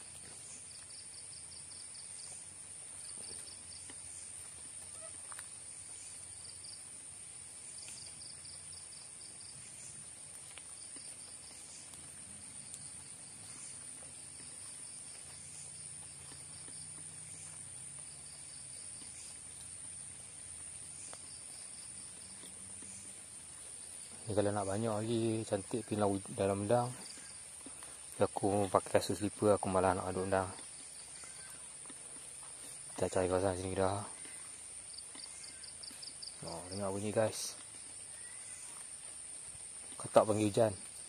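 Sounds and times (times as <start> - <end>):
insect high-pitched drone: 0.0 - 41.0
insect rapid chirps: 0.0 - 41.0.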